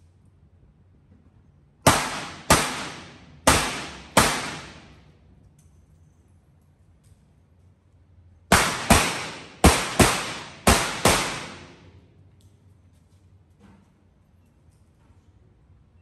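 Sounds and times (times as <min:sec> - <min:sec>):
revolver shots echoing: 0:01.9 - 0:05.0, 0:08.5 - 0:11.9.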